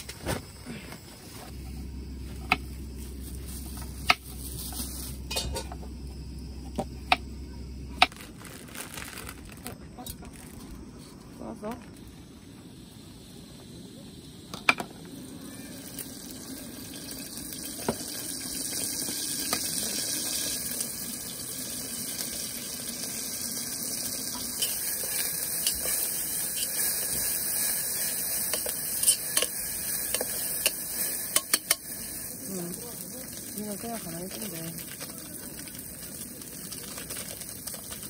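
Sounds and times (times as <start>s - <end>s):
camp stove hissing: 0.0s - 9.5s, 10.9s - 38.0s
cookware clinking: 5.3s - 5.8s.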